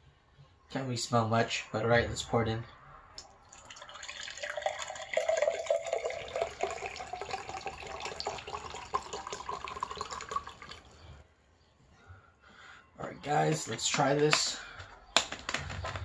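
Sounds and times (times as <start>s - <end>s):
liquid pouring into a glass: 3.2s - 11.0s.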